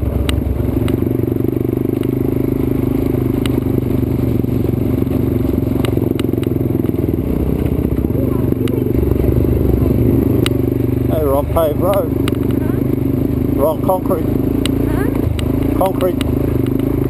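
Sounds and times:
motorbike engine running: 0.0s - 17.0s.

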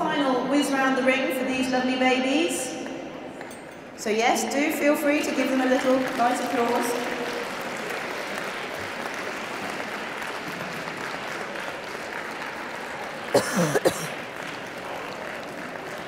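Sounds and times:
audience applauding: 5.7s - 16.0s.

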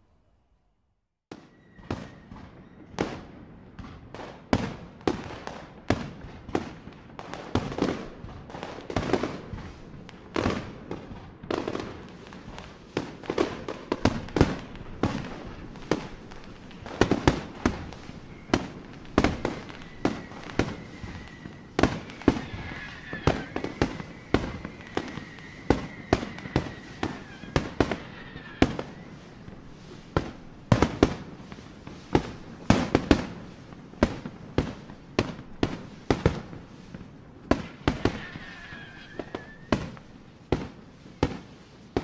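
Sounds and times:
faint high whistle: 1.3s - 3.0s, 17.9s - 29.6s, 38.1s - 39.8s
fireworks banging: 1.3s - 42.0s.

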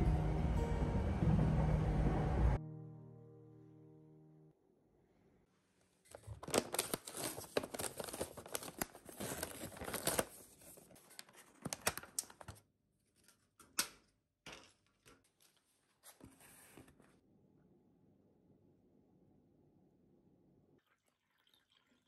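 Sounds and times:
paper sleeve rustling: 6.1s - 12.6s, 15.4s - 17.1s
thin plastic crackling: 6.1s - 12.6s.

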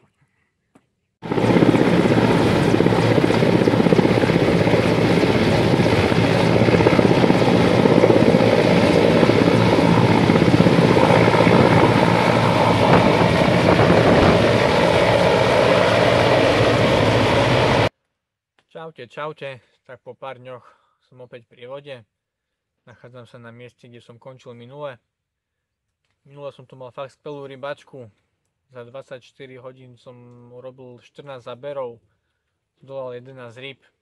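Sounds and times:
helicopter rotor and turbine: 1.2s - 17.9s.

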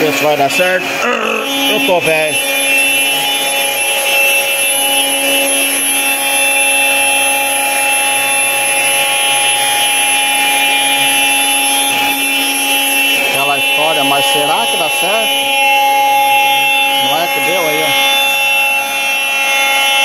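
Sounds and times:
router cutting noise: 0.0s - 20.0s
router spindle whining: 0.0s - 20.0s.

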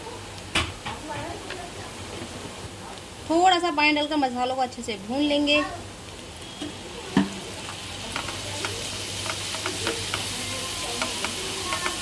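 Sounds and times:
masala sizzling in a pan: 0.0s - 12.0s
spatula stirring and scraping: 6.6s - 12.0s.

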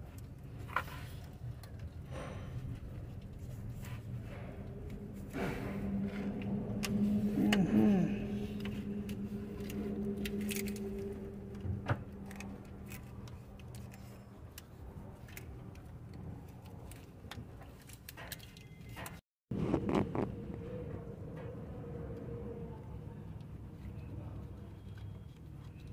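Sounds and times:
steady mechanical hum: 0.0s - 19.2s
short wavering whine: 4.2s - 14.3s.

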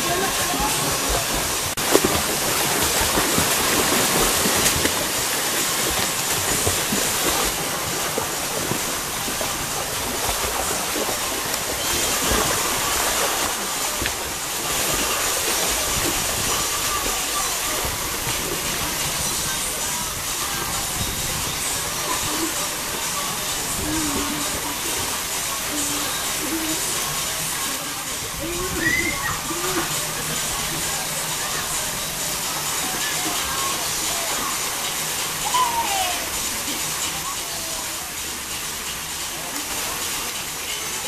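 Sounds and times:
people splashing through water: 0.0s - 19.9s
water rushing: 0.0s - 41.0s.

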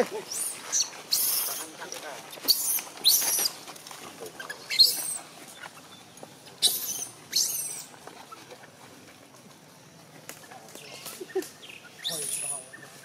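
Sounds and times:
baby monkey yelling: 2.5s - 3.6s, 6.6s - 7.9s.

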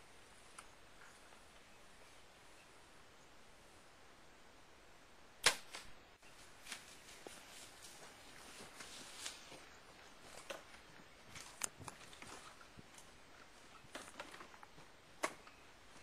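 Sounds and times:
gunshot: 5.4s - 5.9s
faint clicks and rustles: 5.7s - 16.0s.

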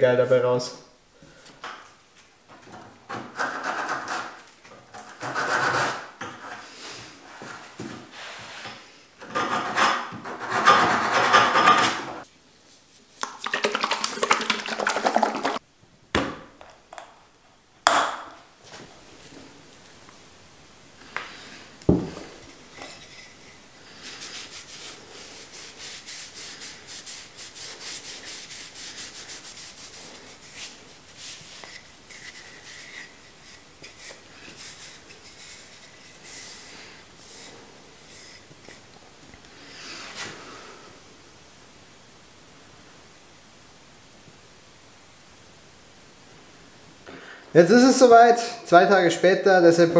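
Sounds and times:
sandpaper scratching wood: 3.3s - 4.4s, 5.0s - 6.1s, 9.3s - 12.0s, 24.0s - 38.5s
cloth rubbing over wood: 22.2s - 38.9s.

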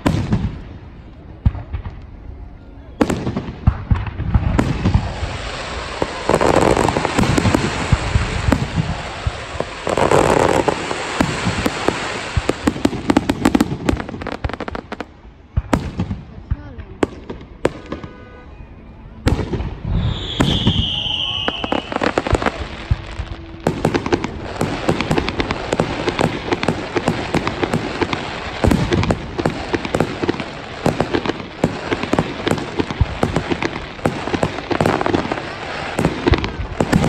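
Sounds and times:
crackling firework pops: 0.0s - 2.3s, 3.0s - 18.3s, 19.3s - 37.0s
high falling whistle tone: 19.9s - 23.8s.

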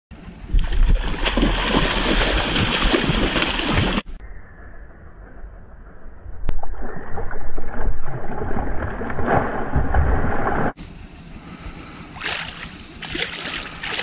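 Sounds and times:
fish splashing in water: 0.6s - 4.1s, 12.2s - 14.0s.

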